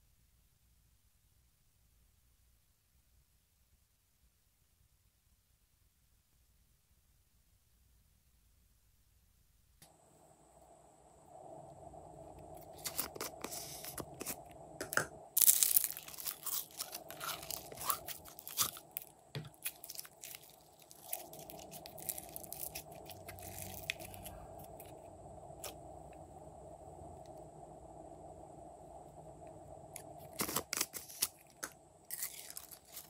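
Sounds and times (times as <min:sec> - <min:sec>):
faint steady hum: 0:00.0 - 0:33.0
sticky slime crackles and pops: 0:12.7 - 0:24.9.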